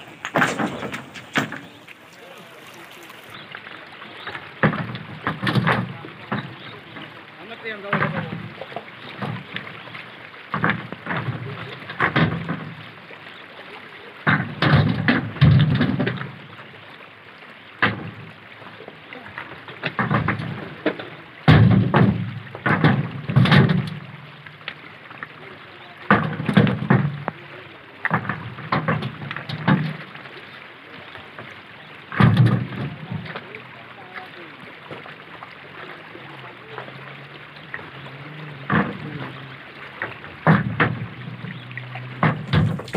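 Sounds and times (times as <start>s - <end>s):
stones thrown into steel truck bed: 0.0s - 1.8s, 42.2s - 42.9s
river rushing: 0.0s - 15.0s, 23.9s - 42.9s
stones knocking into truck bed: 0.2s - 1.8s, 21.5s - 23.9s, 32.2s - 32.7s, 42.2s - 42.9s
men's voices: 1.4s - 3.4s.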